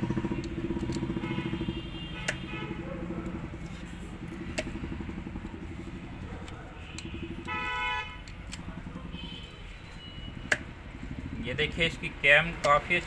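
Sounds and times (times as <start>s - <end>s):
low engine rumble: 0.0s - 13.0s
vehicle horn honk: 0.9s - 3.0s, 6.9s - 8.3s, 9.0s - 10.6s.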